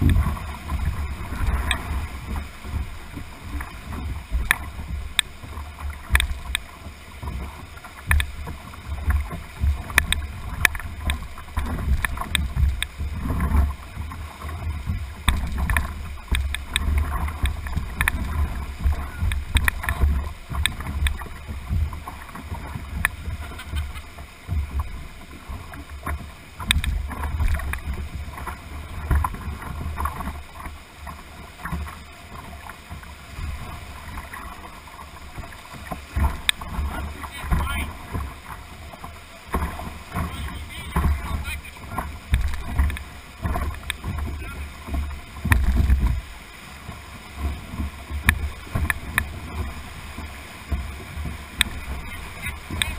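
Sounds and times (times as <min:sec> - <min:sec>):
low uneven rumble: 0:00.0 - 0:52.9
rapids rushing: 0:00.0 - 0:52.9
water splashing against deck: 0:00.0 - 0:52.9
sharp clicks and knocks: 0:15.2 - 0:21.2, 0:26.6 - 0:27.8.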